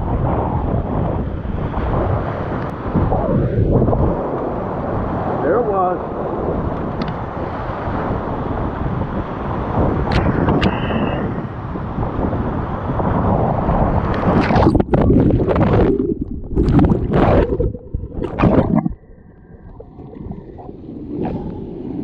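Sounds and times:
muffled water wash: 0:00.0 - 0:22.0.

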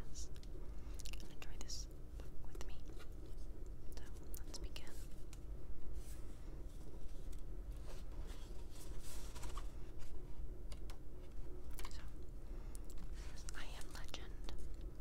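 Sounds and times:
book pages being turned: 0:06.0 - 0:10.2.

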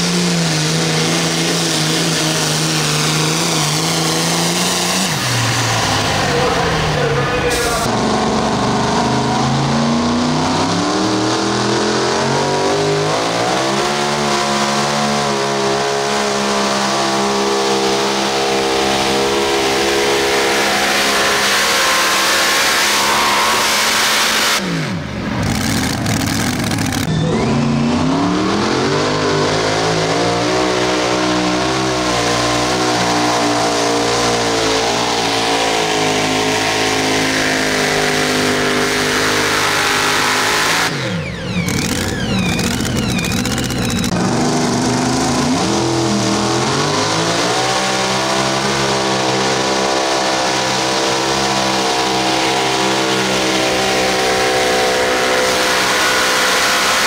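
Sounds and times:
tractor engines at full throttle: 0:00.0 - 0:57.0.

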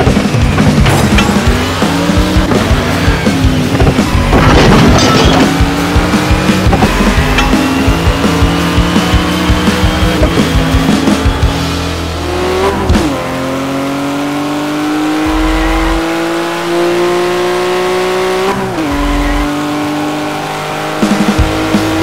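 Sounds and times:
music with a beat: 0:00.0 - 0:13.2, 0:20.9 - 0:22.0
race car engine revving: 0:00.0 - 0:22.0.

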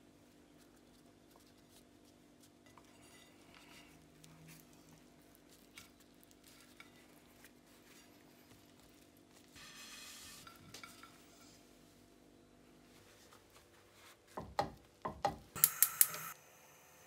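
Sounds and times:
tortilla rustling on a plate: 0:00.0 - 0:12.1
low room hum: 0:00.0 - 0:17.0.

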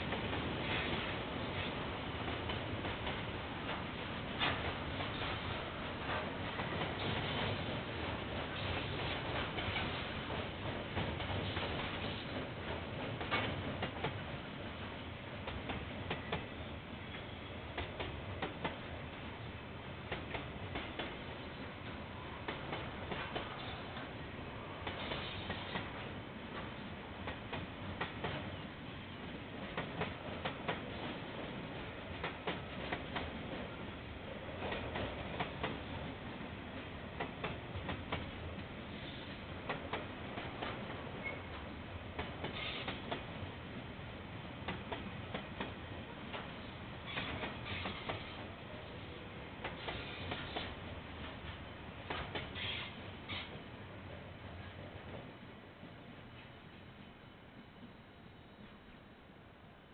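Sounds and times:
train wheels clicking over rail joints: 0:00.0 - 0:14.3, 0:20.1 - 0:24.0, 0:24.8 - 0:28.5, 0:29.6 - 0:33.8, 0:36.8 - 0:43.4, 0:44.7 - 0:48.6, 0:49.6 - 0:53.7.

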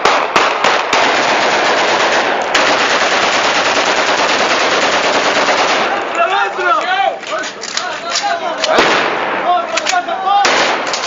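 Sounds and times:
rapid automatic gunfire: 0:00.0 - 0:06.0
rifle shots: 0:00.0 - 0:06.2, 0:08.6 - 0:11.0.

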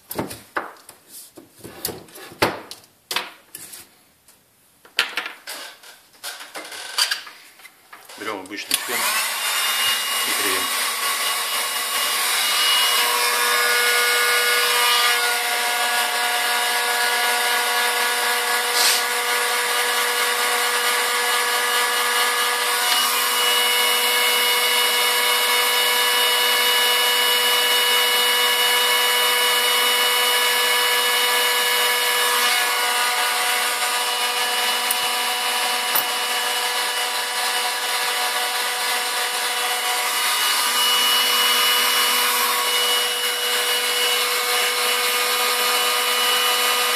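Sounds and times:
heat gun whining tones: 0:08.0 - 0:14.0, 0:22.8 - 0:46.9
heat gun blowing air: 0:18.6 - 0:19.2.

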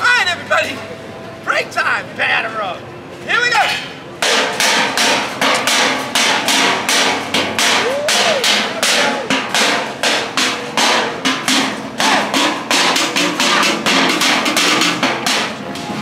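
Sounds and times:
percussion drumming: 0:04.2 - 0:16.0
person shouting: 0:07.8 - 0:08.5.

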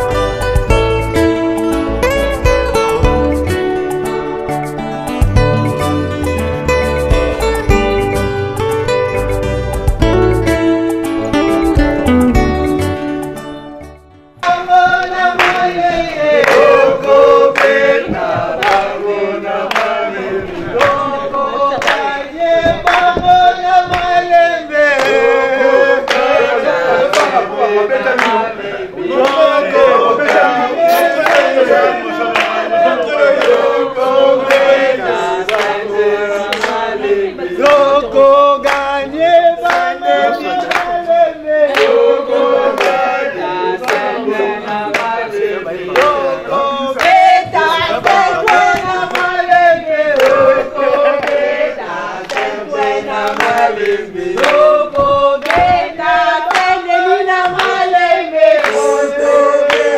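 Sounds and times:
rhythmic hand clapping: 0:00.0 - 0:59.9
group of people singing: 0:14.4 - 0:59.9.

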